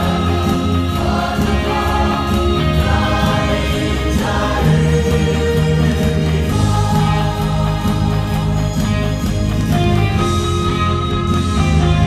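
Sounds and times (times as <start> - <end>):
mixed choir singing a hymn: 0.0 - 9.7.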